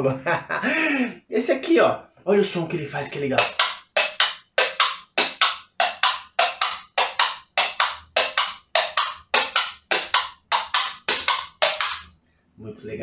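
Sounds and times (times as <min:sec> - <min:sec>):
coconut shells clopping like hooves: 0:03.1 - 0:12.1.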